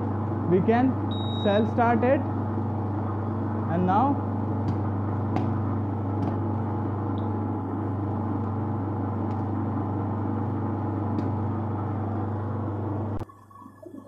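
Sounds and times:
electric motor humming: 1.4 - 13.2.

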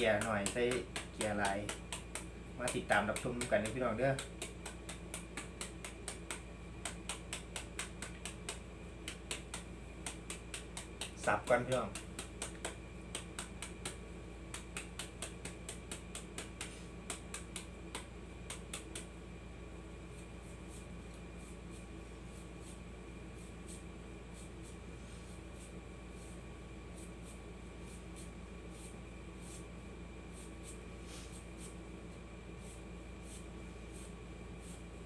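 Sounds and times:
knife chopping bamboo shoot: 0.0 - 19.1.

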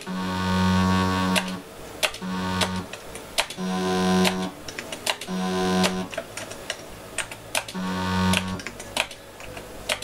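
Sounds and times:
low buzzy computer bleeps: 0.0 - 1.6, 2.2 - 2.9, 3.6 - 4.5, 5.3 - 6.1, 7.8 - 8.6
computer keyboard clicks: 6.1 - 10.0.

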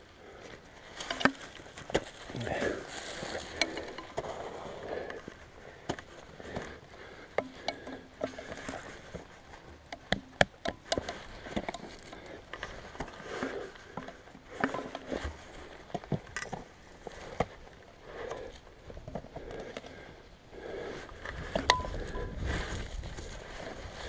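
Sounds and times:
dry grass rustling: 0.0 - 24.0
boots scraping on rock: 0.9 - 5.0.

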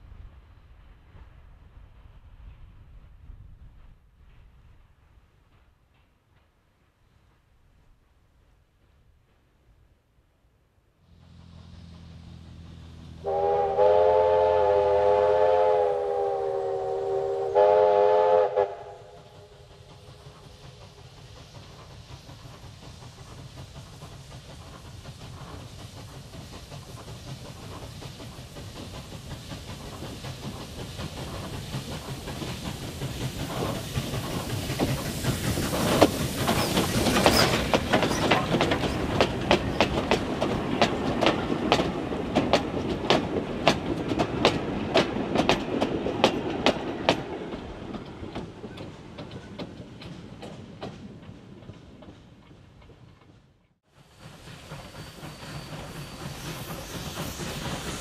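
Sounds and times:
steam locomotive passing: 10.8 - 58.0
carriage wheels clicking over rail joints: 19.7 - 52.2.

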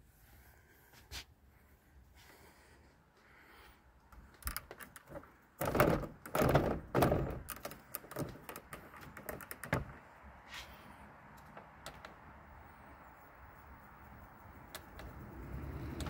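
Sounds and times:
plastic clicks and knocks: 4.4 - 10.0.

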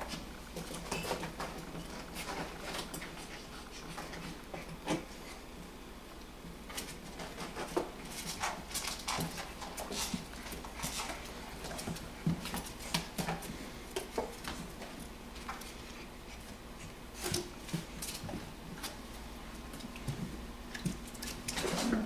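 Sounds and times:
paws scuffling on plastic: 6.7 - 22.0.

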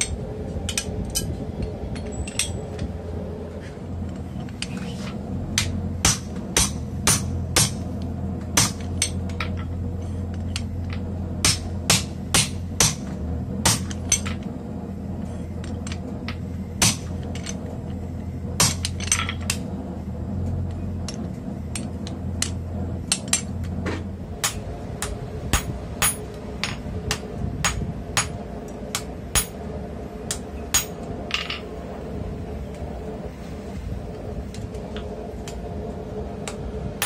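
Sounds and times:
hammer striking hot steel: 5.5 - 9.7, 10.3 - 14.5, 15.5 - 17.6, 18.6 - 19.7, 24.4 - 29.6, 30.3 - 31.6.

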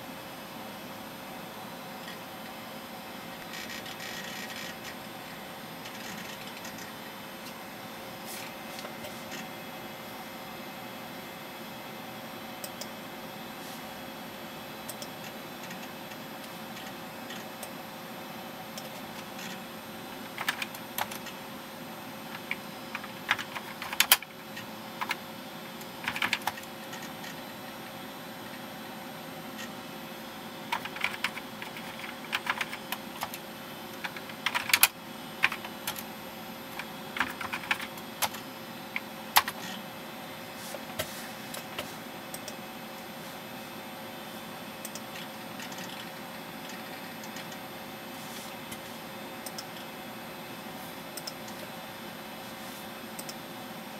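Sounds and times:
steady electrical hum: 0.0 - 53.9
keyboard typing: 3.4 - 5.0, 5.8 - 7.0, 14.9 - 17.8, 18.8 - 21.4, 22.3 - 25.2, 25.8 - 28.6, 30.6 - 36.1, 36.7 - 39.8, 44.8 - 47.6.

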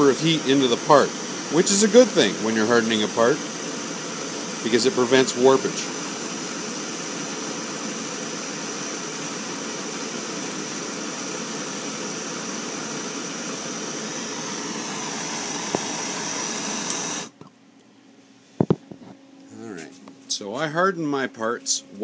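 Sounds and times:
gas torch flame hissing: 0.0 - 17.4.

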